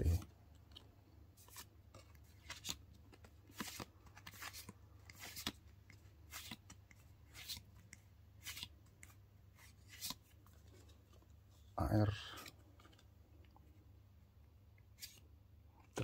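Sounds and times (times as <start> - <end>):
cards swishing off a stack: 3.5 - 5.6.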